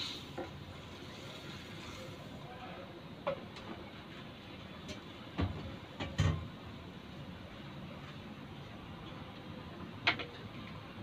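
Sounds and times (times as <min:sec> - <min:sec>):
low steady hiss: 0:00.0 - 0:11.0
kitchenware clicks and knocks: 0:05.4 - 0:06.5, 0:10.0 - 0:10.5.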